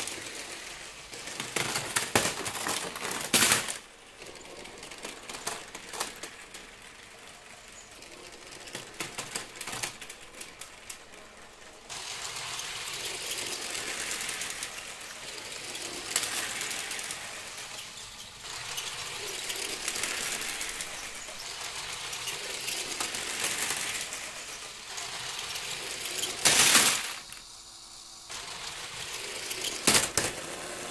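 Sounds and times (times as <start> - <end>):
toy train rattling on track: 0.0 - 30.9.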